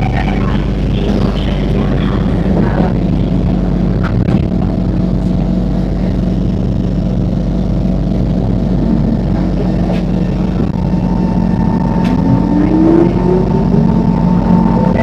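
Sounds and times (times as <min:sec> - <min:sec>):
train carriage hum: 0:00.0 - 0:15.0.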